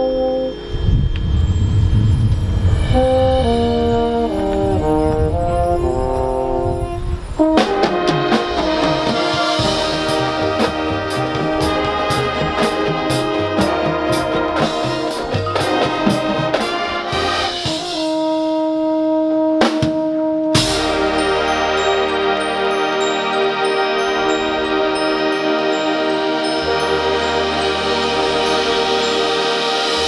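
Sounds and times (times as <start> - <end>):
brass chords: 0.0 - 1.1, 2.7 - 30.0
sharp percussion hits: 0.0 - 5.4, 7.4 - 18.4, 20.6 - 30.0
marching band playing: 2.8 - 30.0
drum hits: 7.6 - 18.2, 20.6 - 21.6.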